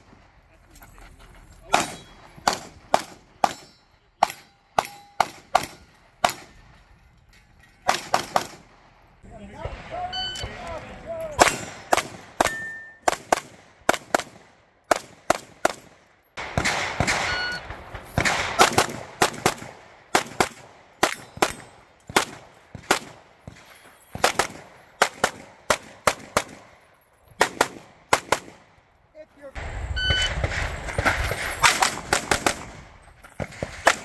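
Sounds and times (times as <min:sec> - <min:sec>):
pistol shots: 0:01.7 - 0:06.6, 0:07.9 - 0:08.8, 0:11.4 - 0:26.8, 0:27.4 - 0:28.8, 0:30.0 - 0:34.0.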